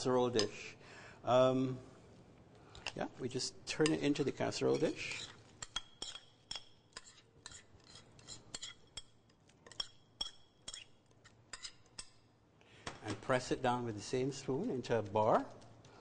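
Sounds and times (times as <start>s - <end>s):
metal spoon scraping glass bowl: 3.8s - 12.1s.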